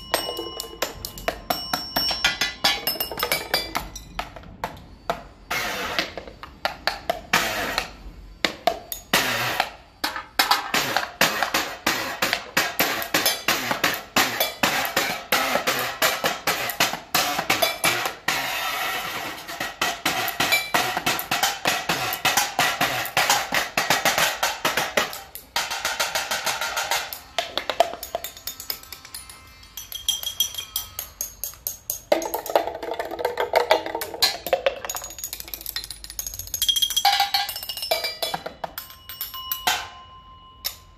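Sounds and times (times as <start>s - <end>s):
sticks hitting metal tins and jars: 0.0s - 5.2s, 19.9s - 40.0s
small drum kit: 6.8s - 28.9s.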